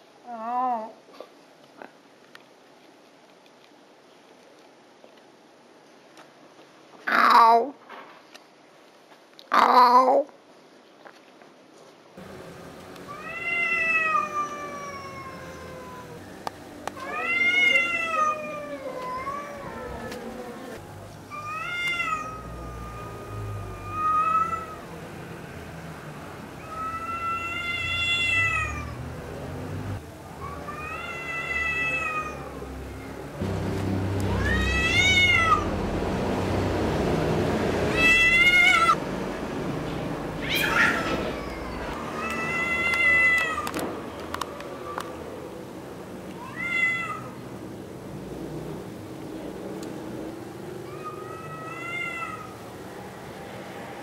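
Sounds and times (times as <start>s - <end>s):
cat yowling: 13.1s - 16.4s, 17.0s - 24.9s, 26.6s - 29.0s, 30.3s - 33.2s, 34.3s - 35.7s, 37.9s - 39.0s, 40.4s - 43.8s, 46.4s - 47.4s, 50.8s - 52.6s.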